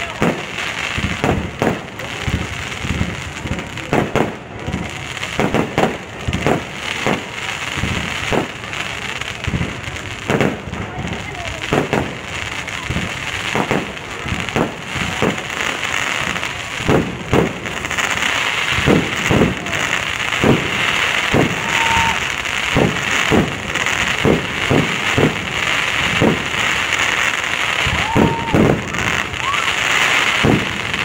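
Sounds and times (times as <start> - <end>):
crackling hiss: 0.0 - 31.0
fireworks bangs: 0.0 - 31.0
firework whistle rising: 18.4 - 24.0, 25.6 - 31.0.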